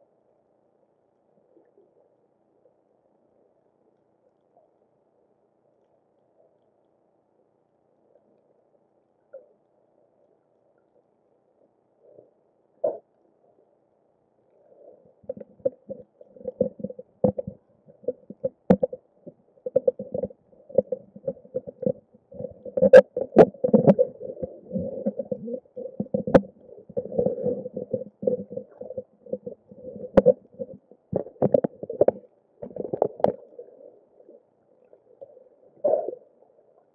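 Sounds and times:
muffled underwater gurgling: 0:14.6 - 0:36.9.

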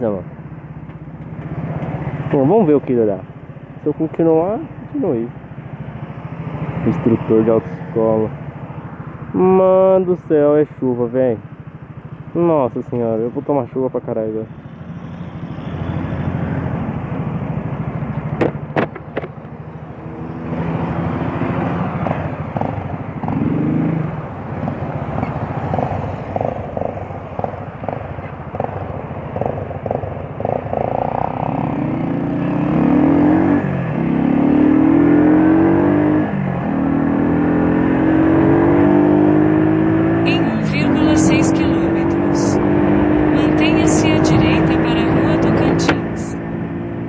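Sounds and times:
motorcycles accelerating away: 0:20.0 - 0:47.0.

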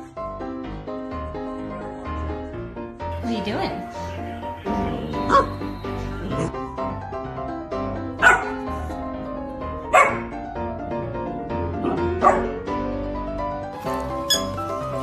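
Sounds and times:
background music: 0:00.0 - 0:15.0
puppy barking: 0:04.7 - 0:06.5, 0:08.2 - 0:08.8, 0:09.9 - 0:10.3, 0:11.8 - 0:12.6, 0:13.8 - 0:15.0.

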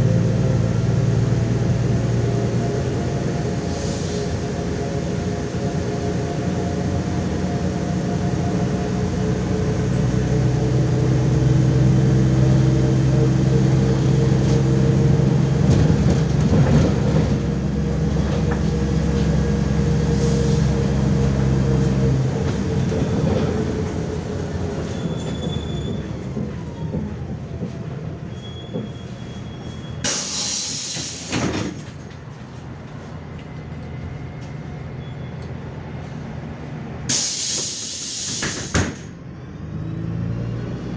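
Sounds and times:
bus diesel engine droning: 0:00.0 - 0:40.9
compressed air hiss: 0:30.1 - 0:31.4, 0:37.1 - 0:38.8.

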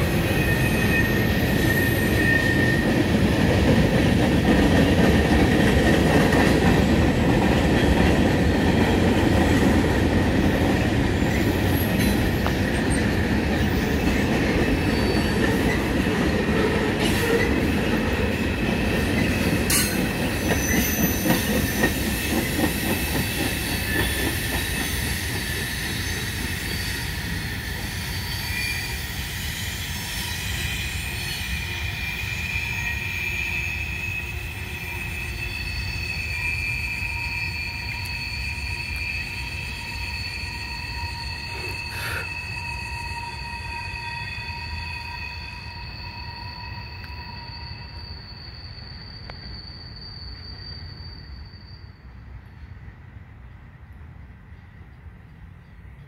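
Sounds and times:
high-pitched wheel squeal: 0:00.0 - 0:03.1, 0:13.6 - 0:16.0, 0:18.9 - 0:52.4
train wheels rumbling on rail: 0:00.0 - 0:56.0.

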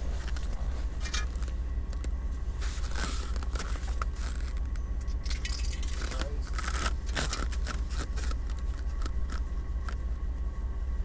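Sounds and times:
metal grill parts clanking: 0:01.0 - 0:01.4.

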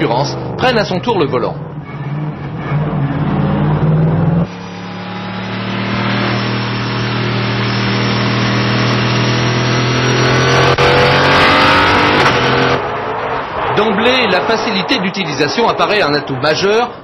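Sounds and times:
race car engine accelerating: 0:00.0 - 0:14.5.

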